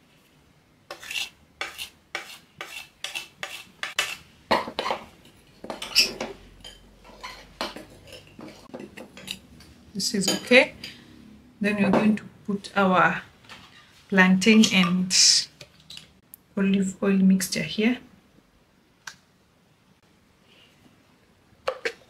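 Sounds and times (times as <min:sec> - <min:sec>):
fork stirring flour in bowl: 0:00.9 - 0:09.4.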